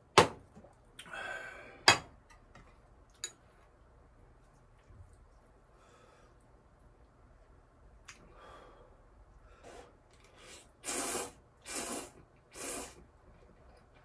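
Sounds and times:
soft breathy sounds: 1.0s - 1.9s, 5.6s - 6.6s, 8.1s - 10.8s
person slurping noodles: 10.4s - 13.0s.

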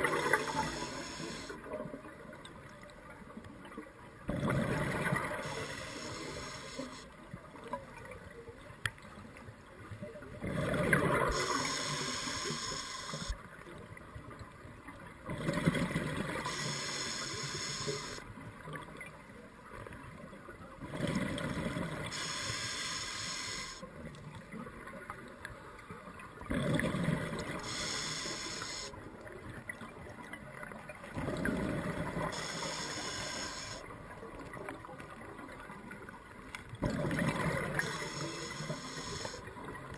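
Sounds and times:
diver breathing through regulator: 0.0s - 1.6s, 5.2s - 7.1s, 11.2s - 13.4s, 16.4s - 18.2s, 22.1s - 23.8s, 27.6s - 28.9s, 32.3s - 33.8s, 37.7s - 39.5s
rush of bubbles underwater: 4.3s - 6.5s, 10.4s - 13.3s, 36.8s - 39.7s.

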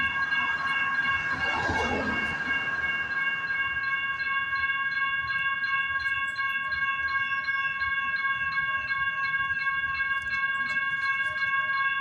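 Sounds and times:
railroad crossing bell ringing: 0.0s - 12.0s.

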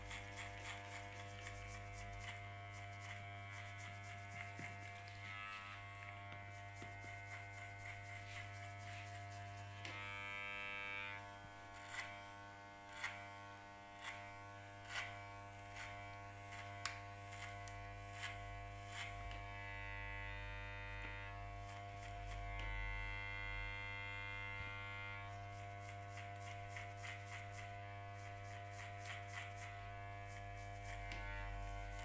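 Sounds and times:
electric hair clipper buzzing: 0.0s - 32.0s.

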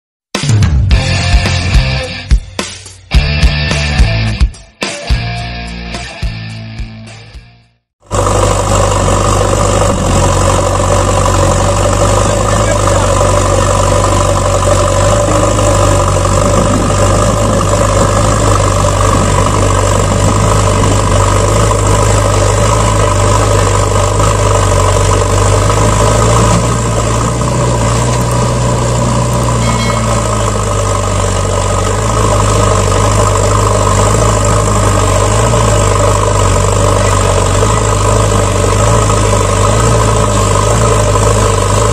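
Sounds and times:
truck engine idling: 8.0s - 41.9s.

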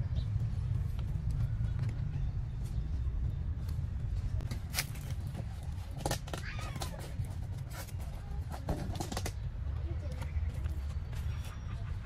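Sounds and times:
steady low rumble: 0.0s - 6.0s.

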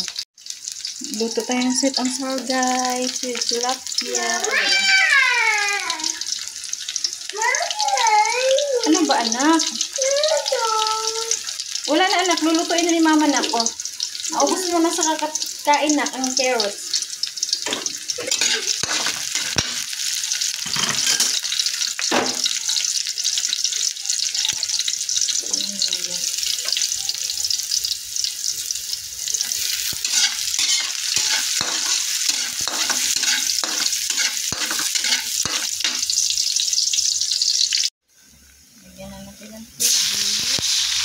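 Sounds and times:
onion and garlic sizzling: 0.0s - 41.0s
metal spatula scraping a pan: 17.7s - 21.8s, 29.2s - 36.2s.

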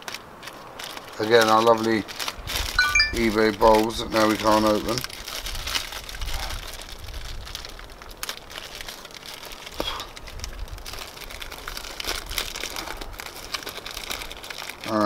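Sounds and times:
plastic packet crinkling: 0.0s - 2.7s, 4.4s - 15.0s.

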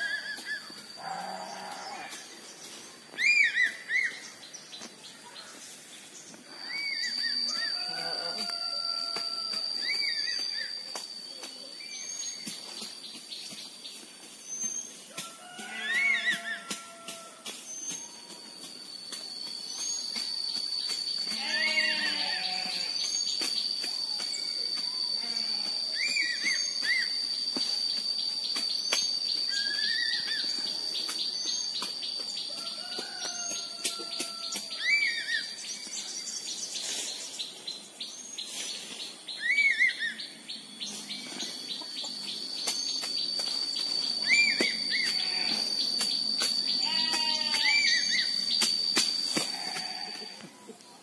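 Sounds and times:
high-pitched insect drone: 0.0s - 4.4s, 6.1s - 50.9s
eagle whistled calls: 3.2s - 4.2s, 39.4s - 40.2s, 46.8s - 49.1s
wavering animal call: 6.5s - 10.4s.

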